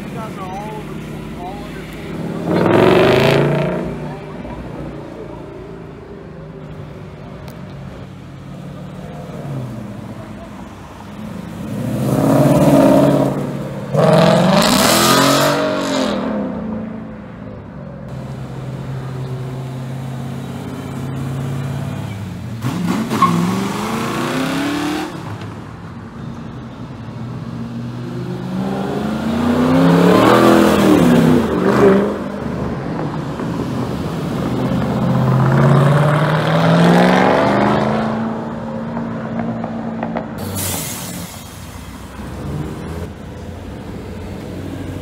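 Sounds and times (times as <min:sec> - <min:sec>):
cars driving past: 0:00.0 - 0:45.0
car engine revving: 0:00.1 - 0:05.3, 0:11.0 - 0:16.9, 0:18.1 - 0:25.4, 0:34.3 - 0:40.2.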